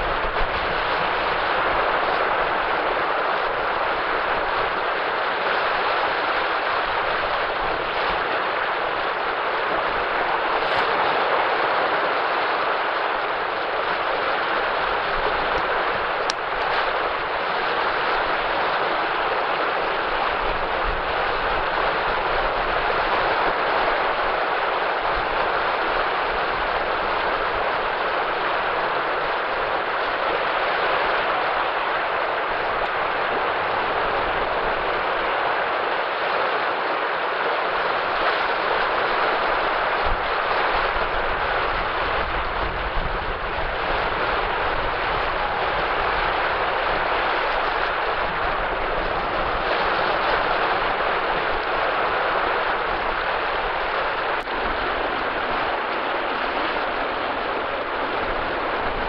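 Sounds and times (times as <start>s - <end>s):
waves washing on sand: 0.0s - 59.0s.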